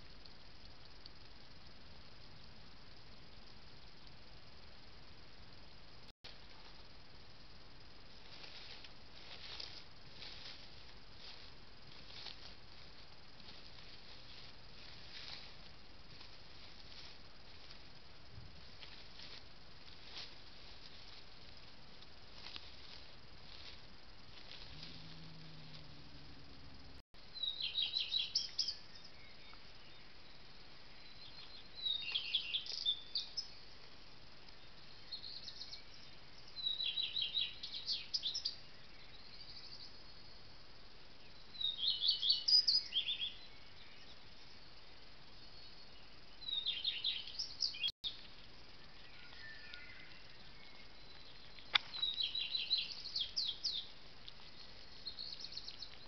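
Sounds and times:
faint steady hiss: 0:00.0 - 0:56.0
songbird singing: 0:18.8 - 0:56.0.

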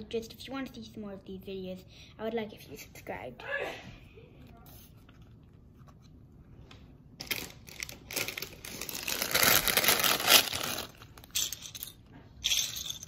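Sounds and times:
plastic bag crinkling: 0:07.2 - 0:11.4.

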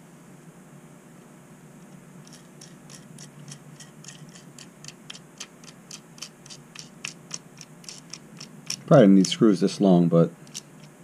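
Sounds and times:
steady low hum: 0:00.0 - 0:11.0
hardware clicking by hand: 0:02.2 - 0:09.4, 0:10.4 - 0:11.0.

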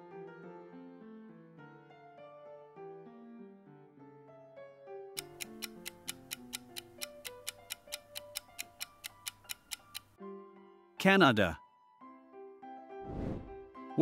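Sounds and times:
background music: 0:00.0 - 0:14.0
countdown timer ticking: 0:05.2 - 0:10.2.

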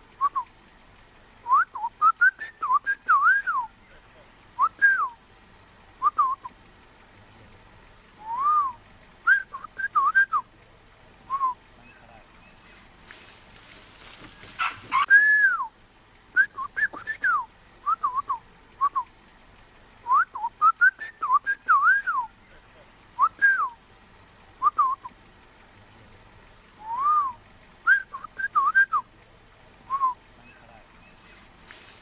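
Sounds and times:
person whistling: 0:08.2 - 0:10.4, 0:15.0 - 0:15.7, 0:26.8 - 0:29.0.

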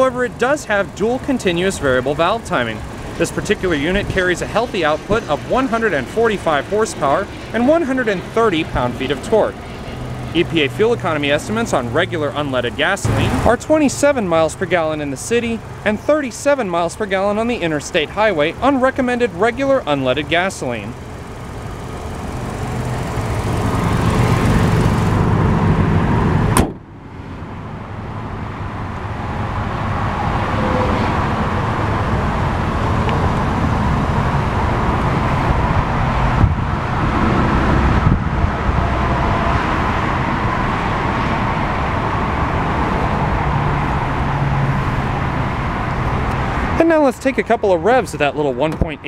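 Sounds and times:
car engine idling: 0:00.0 - 0:29.8.

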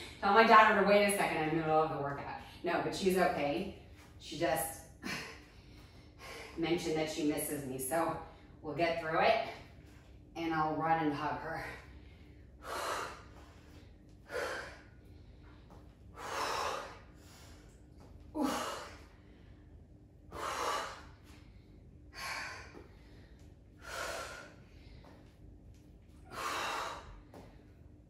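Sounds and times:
woman breathing hard: 0:05.0 - 0:06.6, 0:11.5 - 0:17.8, 0:18.4 - 0:25.4, 0:26.2 - 0:27.9.

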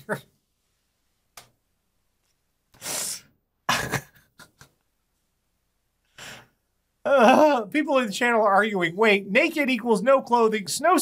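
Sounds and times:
person breathing out and sniffing: 0:02.8 - 0:03.4, 0:06.1 - 0:06.6.

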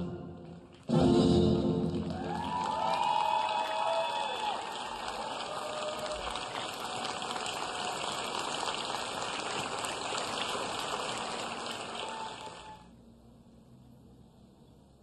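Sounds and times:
audience applauding: 0:01.8 - 0:12.9.

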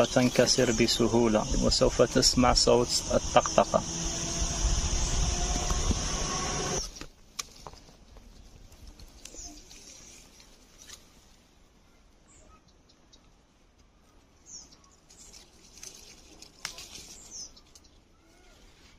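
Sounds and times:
leaves and branches rustling: 0:00.0 - 0:02.8, 0:04.8 - 0:12.4, 0:13.2 - 0:18.9
small birds chirping: 0:00.0 - 0:07.2, 0:08.2 - 0:18.9.

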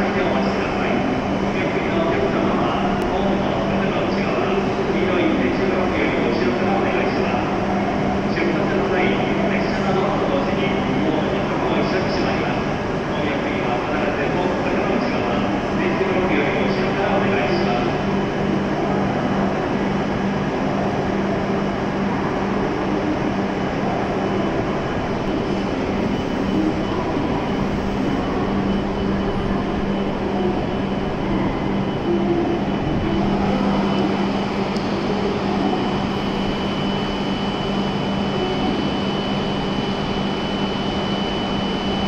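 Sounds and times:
train equipment hum: 0:00.0 - 0:42.0
thin high whine: 0:23.3 - 0:42.0.

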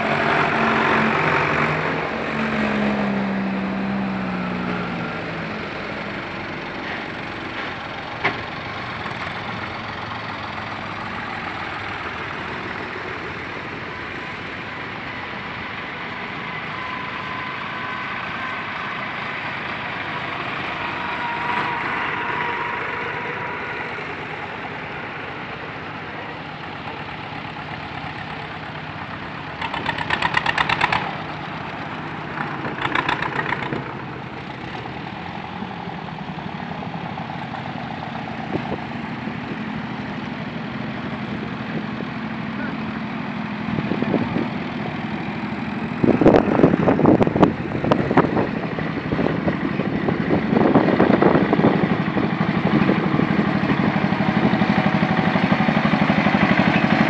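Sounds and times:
old tractor engines running: 0:00.0 - 0:57.0
rapid engine firing: 0:29.6 - 0:31.2.

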